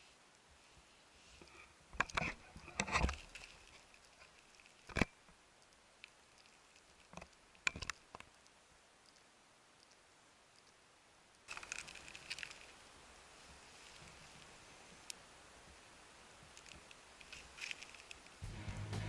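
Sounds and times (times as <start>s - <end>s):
keepnet rustles and knocks: 0.8s - 5.3s.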